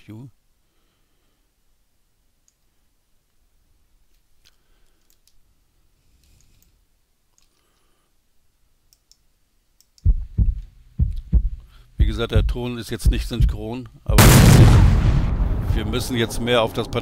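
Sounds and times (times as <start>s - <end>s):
low room hum: 0.0s - 17.0s
computer mouse clicks: 2.4s - 2.7s, 4.1s - 5.4s, 6.2s - 7.9s, 8.9s - 10.1s.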